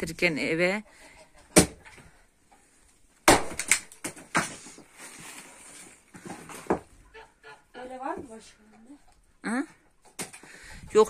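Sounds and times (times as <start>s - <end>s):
axe chopping wood: 1.6s - 1.8s, 3.2s - 4.6s.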